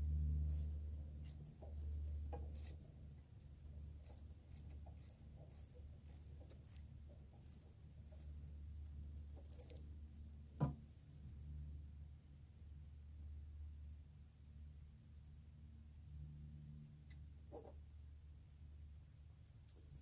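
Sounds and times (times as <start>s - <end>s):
low steady rumble: 0.0s - 20.0s
socket ratchet clicking: 0.5s - 2.8s, 3.4s - 8.3s, 9.1s - 9.8s.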